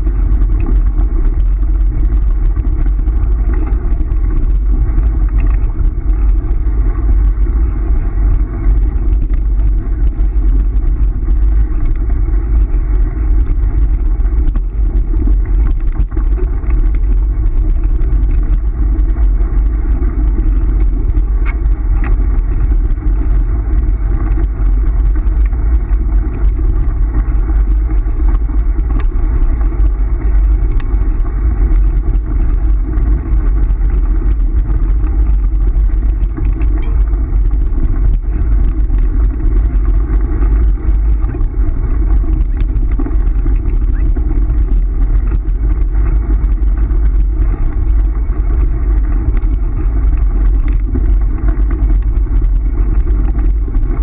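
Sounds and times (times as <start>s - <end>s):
wheels rumbling on gravel: 0.0s - 54.0s
wind buffeting microphone: 0.0s - 54.0s.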